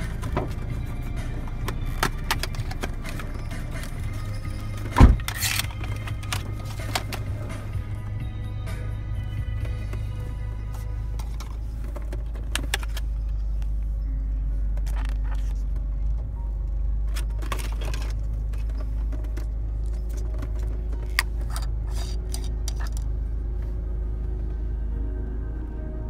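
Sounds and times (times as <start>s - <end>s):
low rumble of car: 0.0s - 26.0s
plastic packaging clicks and rattles: 17.1s - 23.1s.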